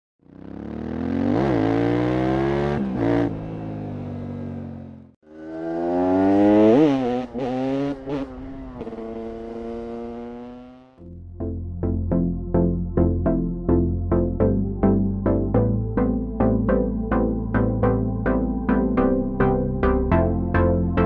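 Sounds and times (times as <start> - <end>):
motorcycle engine revving: 0.2 - 11.0.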